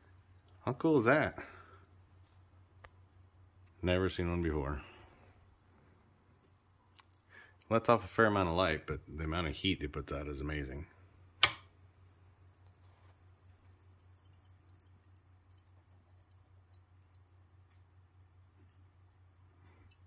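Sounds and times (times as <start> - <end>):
low steady hum: 0.0 - 20.0
heat lamp coil tinking: 11.3 - 20.0
switch click: 11.4 - 11.7.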